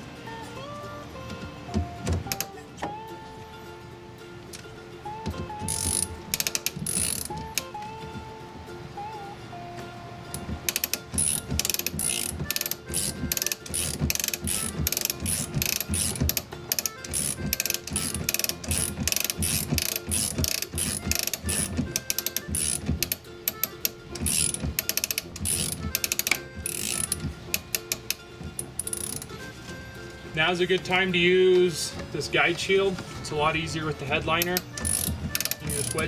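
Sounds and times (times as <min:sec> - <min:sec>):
hand ratchet clicking rapidly: 0:05.3 - 0:07.7, 0:10.4 - 0:29.3, 0:34.1 - 0:36.0.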